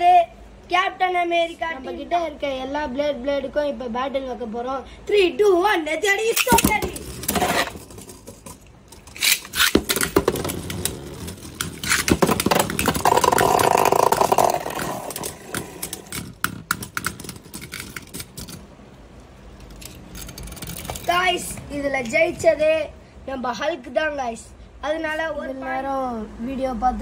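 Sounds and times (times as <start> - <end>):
spinning tops clacking together: 6.2 - 18.6.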